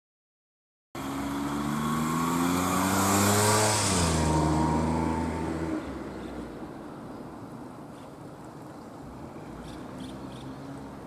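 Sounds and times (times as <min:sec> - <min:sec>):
vehicle driving past: 0:01.0 - 0:06.6.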